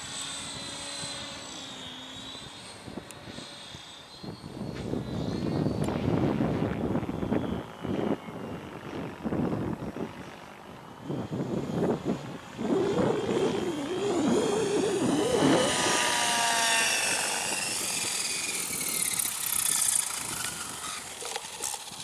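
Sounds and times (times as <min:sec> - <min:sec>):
rc helicopter rotor whine: 0:00.0 - 0:22.0
wind buffeting microphone: 0:02.5 - 0:22.0.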